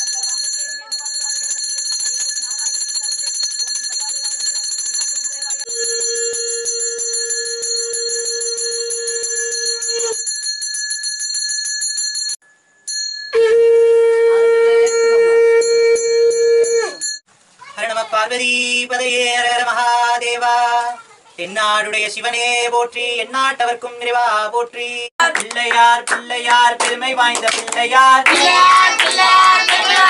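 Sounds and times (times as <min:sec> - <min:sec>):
hand bell ringing rapidly: 0:00.0 - 0:13.4
conch shell blasts: 0:13.3 - 0:17.0.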